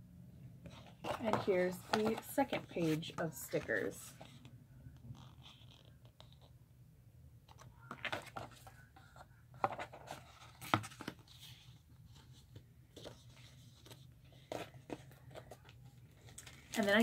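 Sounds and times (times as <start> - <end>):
paper rustling: 7.5 - 17.0.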